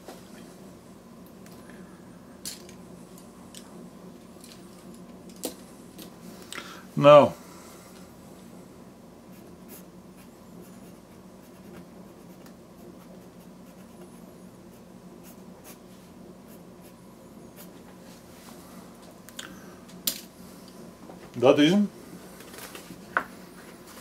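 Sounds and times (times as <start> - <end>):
low steady hum: 0.0 - 24.0
pencil scratching on paper: 9.3 - 15.8.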